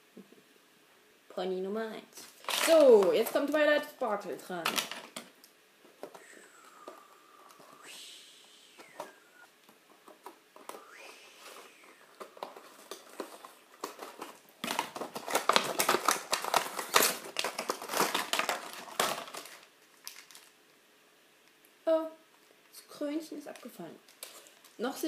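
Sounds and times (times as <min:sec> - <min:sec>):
plastic wrapping crinkling and tearing: 0:02.2 - 0:03.7, 0:04.6 - 0:05.3, 0:11.5 - 0:20.6, 0:23.5 - 0:24.8.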